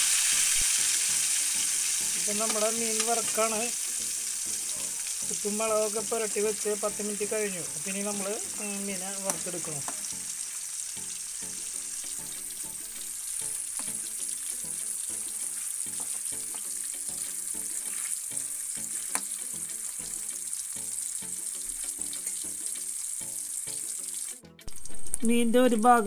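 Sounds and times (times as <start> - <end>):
fish deep-frying in oil: 0.0 - 26.0
steel spoon clicking on pan: 19.0 - 19.4.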